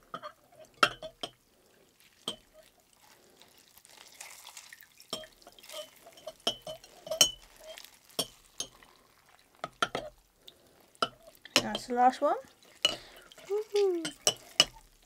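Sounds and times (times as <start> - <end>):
water dripping and splashing: 0.0 - 15.0
metal utensil clinking on glass bowl: 0.1 - 1.4, 2.2 - 2.7, 5.1 - 8.8, 9.6 - 10.1, 11.0 - 12.2, 12.8 - 14.8.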